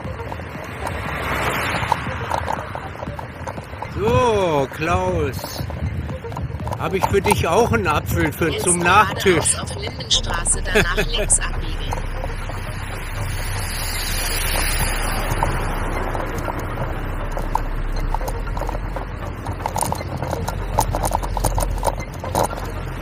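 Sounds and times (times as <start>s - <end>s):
tyres rolling on asphalt: 0.0s - 23.0s
wind buffeting microphone: 0.0s - 23.0s
bicycle clicks and rattles: 16.4s - 23.0s.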